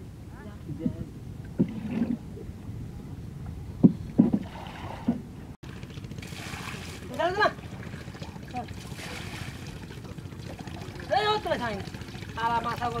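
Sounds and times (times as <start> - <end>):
low outdoor background: 0.0 - 13.0
dull knocks on wooden boat: 3.8 - 5.2
hissy water splash: 5.6 - 13.0.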